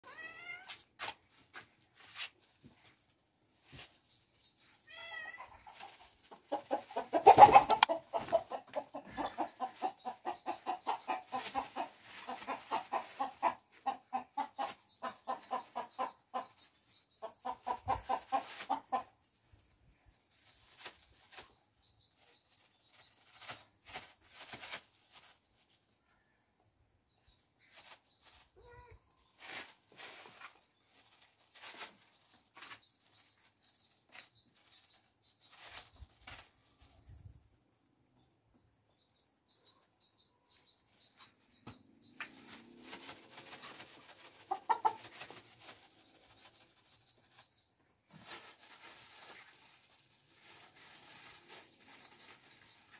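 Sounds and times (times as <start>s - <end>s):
chickens clucking: 5.4s - 19.3s, 39.6s - 52.9s.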